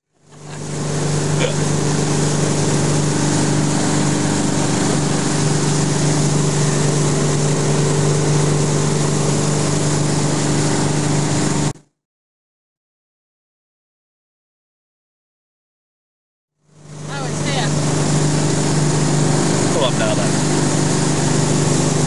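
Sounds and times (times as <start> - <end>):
wind: 0.0 - 11.7, 16.8 - 22.0
boat engine drone: 0.0 - 11.8, 16.6 - 22.0
rushing water: 0.1 - 11.7, 16.9 - 22.0.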